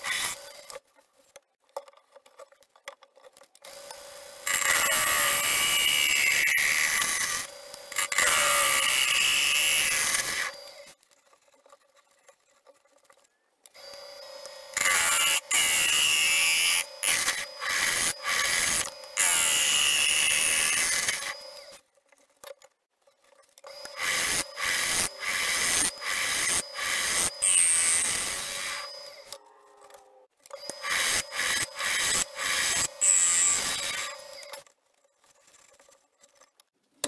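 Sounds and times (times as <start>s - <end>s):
gouge cutting wood on lathe: 3.7s - 10.9s, 13.9s - 21.8s, 23.8s - 29.4s, 30.6s - 34.6s.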